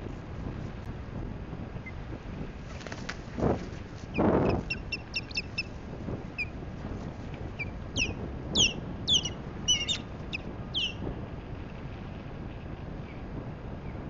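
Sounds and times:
wingbeats: 2.7s - 5.8s, 7.6s - 11.0s
bird chirping and whistling: 4.7s - 5.7s, 8.0s - 11.0s.

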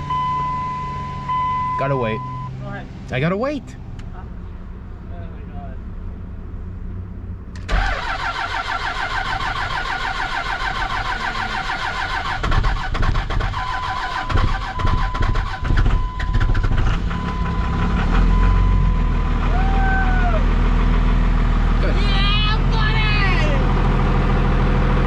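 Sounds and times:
diesel engine idling: 0.0s - 25.0s
diesel engine cranking: 7.5s - 25.0s.

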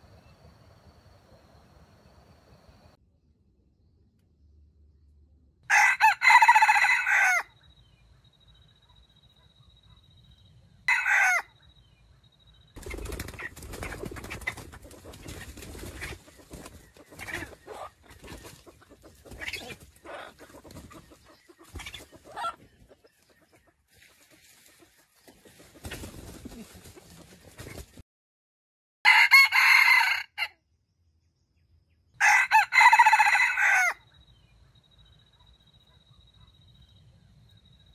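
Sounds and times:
rooster crowing: 5.7s - 7.6s, 10.9s - 11.5s, 29.0s - 30.5s, 32.2s - 34.0s.

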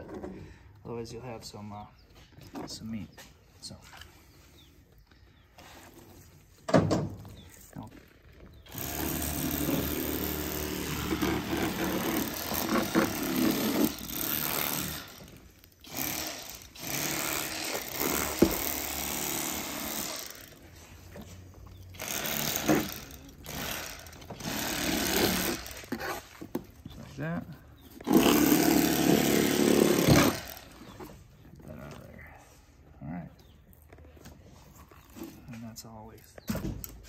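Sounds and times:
electric fillet knife buzzing: 8.7s - 20.6s, 28.0s - 30.8s.

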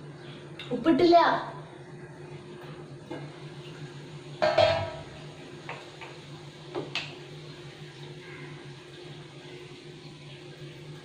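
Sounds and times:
metal pan lid clanging: 4.4s - 5.1s.

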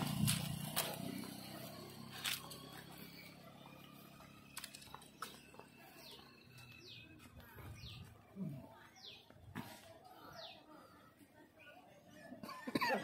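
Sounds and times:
motor scooter engine: 0.0s - 11.0s
bird chirping: 2.5s - 9.3s.

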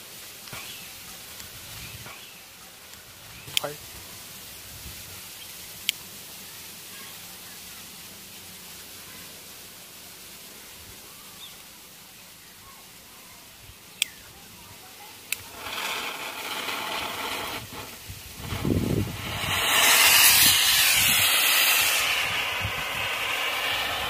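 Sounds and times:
rocket motor hissing rush: 15.0s - 24.0s.

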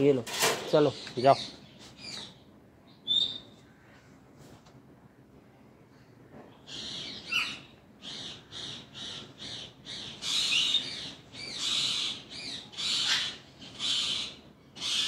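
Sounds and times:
parakeet harsh calls: 6.7s - 15.0s.

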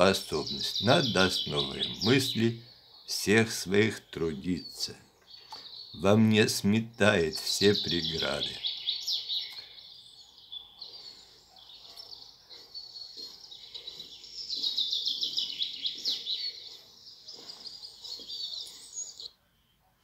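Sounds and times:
songbirds chirping and trilling: 0.0s - 20.0s.

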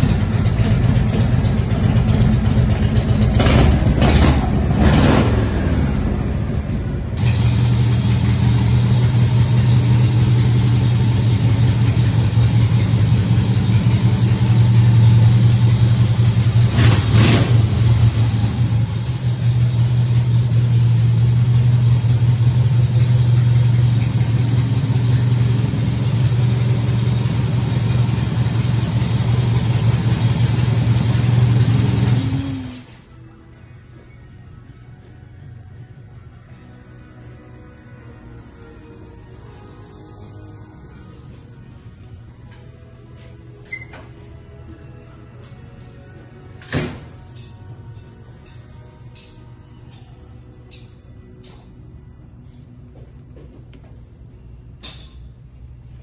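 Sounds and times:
motorcycle engine idling: 0.0s - 32.8s
motorcycle engine revving: 0.0s - 32.9s.

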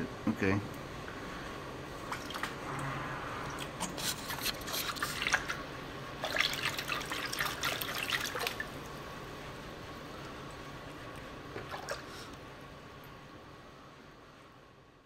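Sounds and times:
water splashing in a tank: 2.0s - 9.0s, 10.9s - 12.3s.

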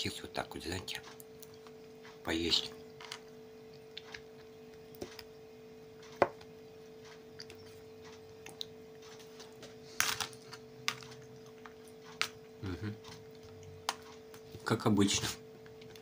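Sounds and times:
faint steady hum: 0.0s - 16.0s
chewing: 6.9s - 14.3s.

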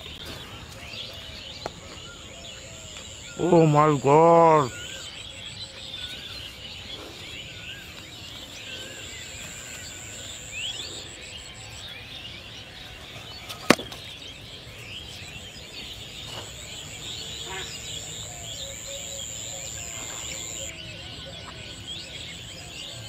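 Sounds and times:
small bird chirps: 13.4s - 23.0s
whistled bird notes: 13.4s - 23.0s
high-pitched insect drone: 18.0s - 20.7s.

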